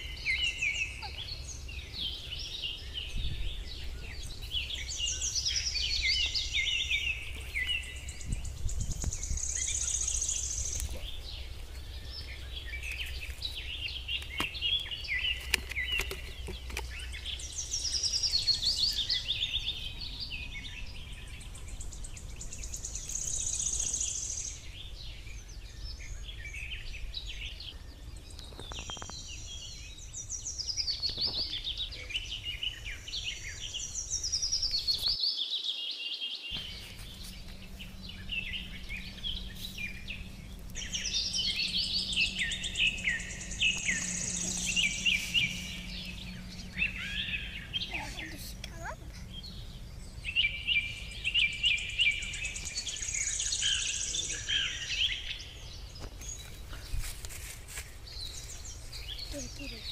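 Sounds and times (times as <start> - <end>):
songbirds singing and chirping: 0.0 - 59.9
low rumble: 36.6 - 57.1.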